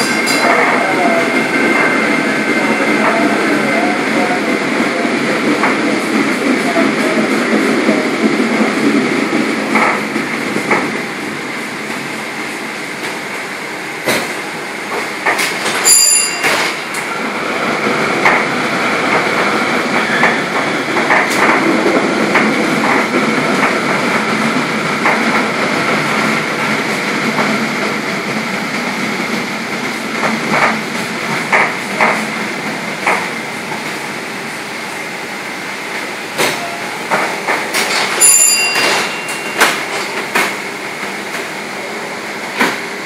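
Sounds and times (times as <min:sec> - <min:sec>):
streetcar bell ring: 0:00.0 - 0:04.3, 0:15.6 - 0:17.3, 0:37.8 - 0:40.7
wheels clanking on track: 0:00.0 - 0:11.0, 0:14.0 - 0:34.1, 0:36.0 - 0:41.5
streetcar running on rails: 0:00.0 - 0:43.0.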